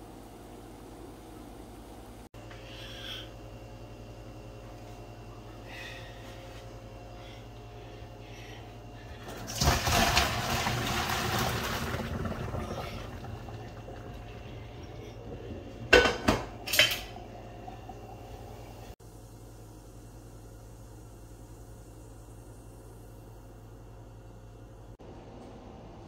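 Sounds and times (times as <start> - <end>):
water pouring into colander: 9.3 - 15.9
pot clanking: 14.8 - 17.2.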